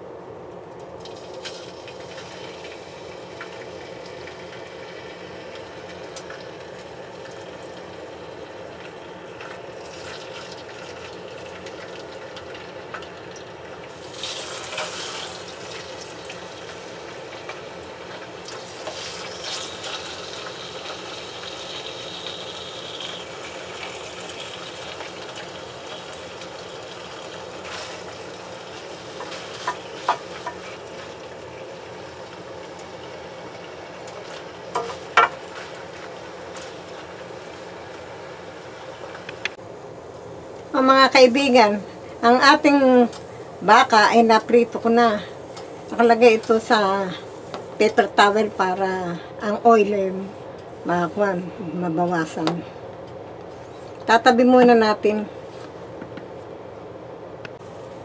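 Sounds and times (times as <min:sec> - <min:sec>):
beef sizzling in a pan: 0:01.0 - 0:39.3.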